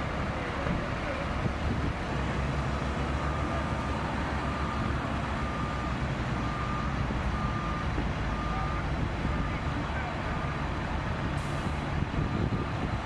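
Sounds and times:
diesel engines rumbling: 0.0s - 13.0s
reversing alarm beeping: 3.2s - 9.8s.

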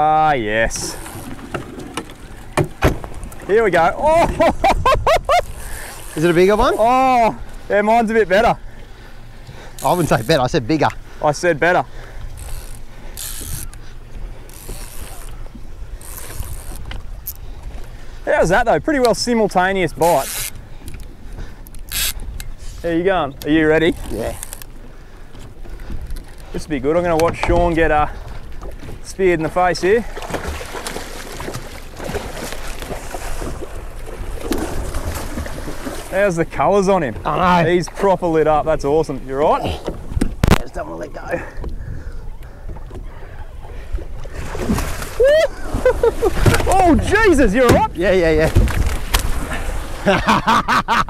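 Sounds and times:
wind rumbling on microphone: 0.0s - 7.7s, 41.6s - 50.2s
water splashing: 0.0s - 20.7s, 25.8s - 41.6s, 42.5s - 50.6s
fishing reel whirring: 0.7s - 1.5s, 5.4s - 6.7s, 9.8s - 10.4s, 12.3s - 13.9s, 14.5s - 17.4s, 20.0s - 20.6s, 21.7s - 22.5s, 23.8s - 24.7s.

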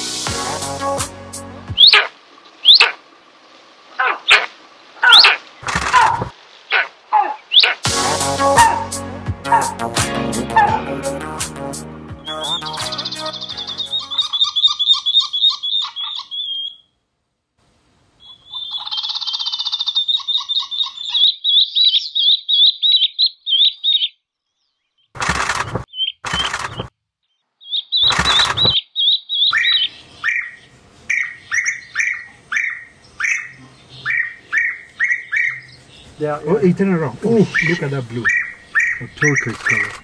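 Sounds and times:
birds chirping: 1.7s - 3.0s, 4.0s - 9.8s, 10.4s - 11.0s, 12.2s - 16.9s, 18.2s - 40.0s
repeated lower bird calls: 1.7s - 3.0s, 4.0s - 9.8s, 12.2s - 16.9s, 18.2s - 25.2s, 25.9s - 36.2s, 37.3s - 40.0s.

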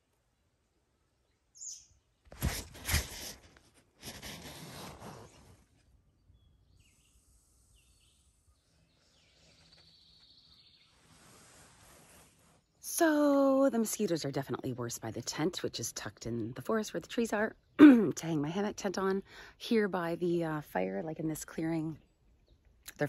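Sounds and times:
nylon hammock rustling: 2.3s - 6.0s, 9.0s - 12.9s.

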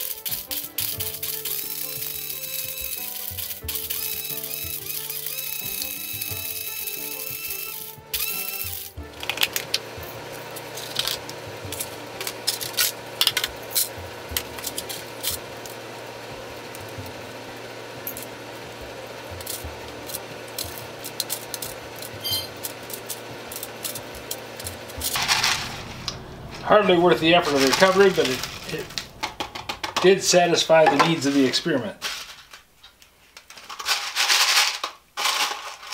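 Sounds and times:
plastic pieces clattering in jar: 0.0s - 9.8s, 10.6s - 15.8s, 19.3s - 25.9s, 30.8s - 35.9s
blender motor humming: 0.0s - 31.2s.

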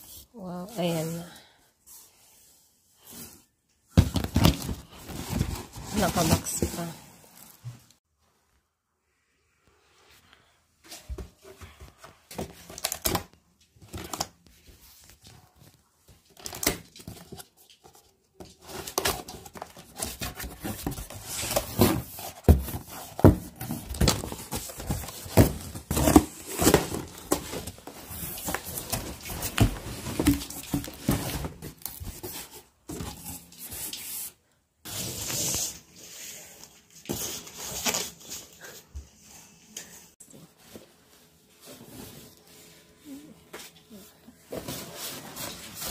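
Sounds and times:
cardboard tearing and rustling: 18.6s - 32.5s.

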